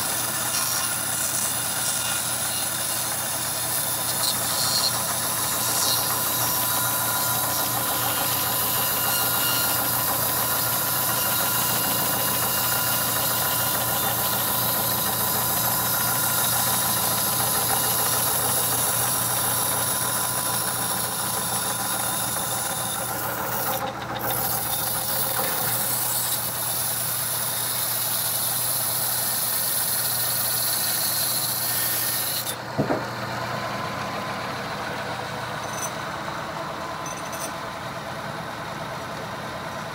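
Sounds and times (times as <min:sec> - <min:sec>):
sawmill mechanical drone: 0:00.0 - 0:39.9
sharp knock: 0:32.7 - 0:33.1.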